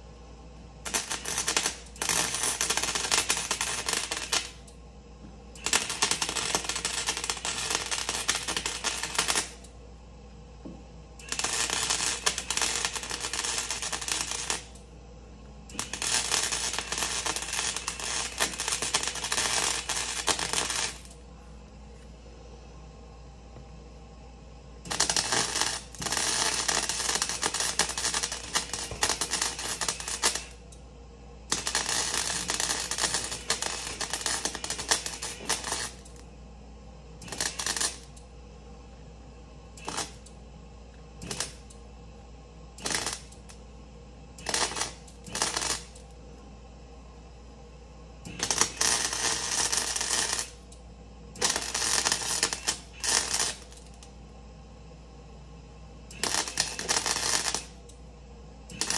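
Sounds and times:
faint steady hum: 0.0s - 58.9s
welding arc crackling: 0.6s - 4.8s, 5.5s - 9.7s, 11.2s - 15.0s, 15.6s - 21.2s, 24.8s - 30.8s, 31.4s - 36.3s, 37.1s - 38.3s, 39.7s - 40.4s, 41.2s - 41.8s, 42.7s - 43.6s, 44.3s - 46.2s, 48.2s - 54.2s, 56.0s - 58.0s, 58.6s - 58.9s.

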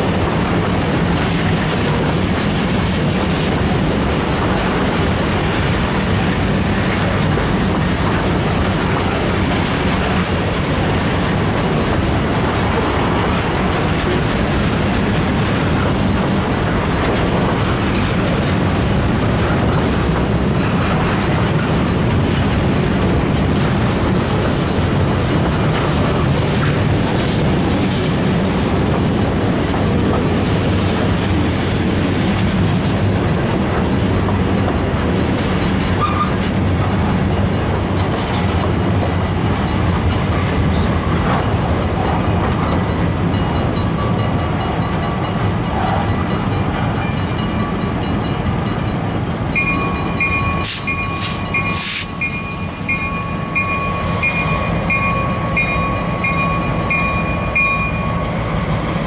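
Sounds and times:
freight train wheels on rail: 0.0s - 59.0s
crossing warning bell dinging: 7.5s - 26.3s, 34.7s - 59.0s.

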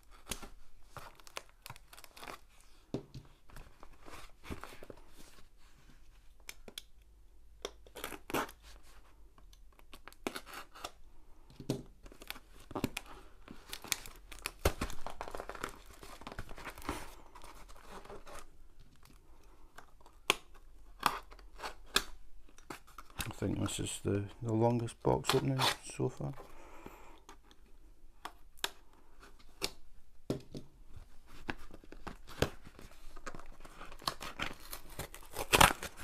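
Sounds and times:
tape tearing and crinkling: 0.0s - 2.8s, 9.7s - 11.0s, 12.0s - 19.2s, 25.2s - 26.0s, 31.3s - 36.0s
knife slitting tape and cardboard: 33.8s - 36.0s.

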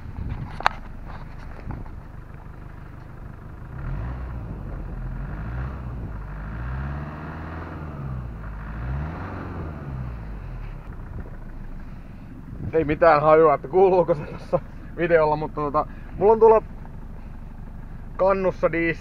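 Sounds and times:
diesel engine clattering: 0.0s - 19.0s.

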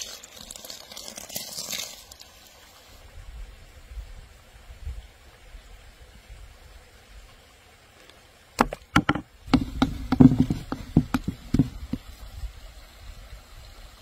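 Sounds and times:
wooden spoon knocking on bowl: 9.0s - 11.7s.

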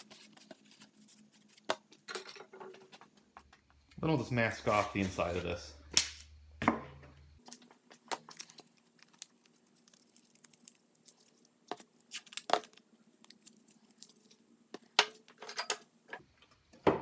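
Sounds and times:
tape crackling: 7.4s - 14.4s.

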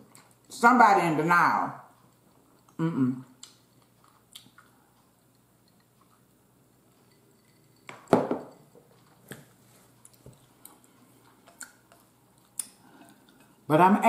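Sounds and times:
glass knocking on a table: 7.9s - 8.6s.

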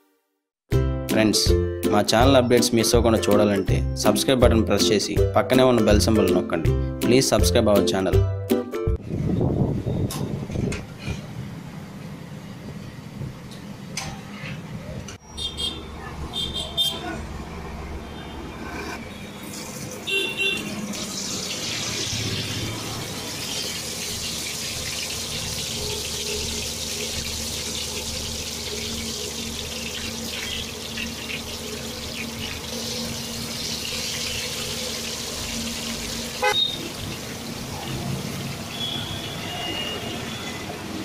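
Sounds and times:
hot oil sizzling: 19.1s - 41.0s.

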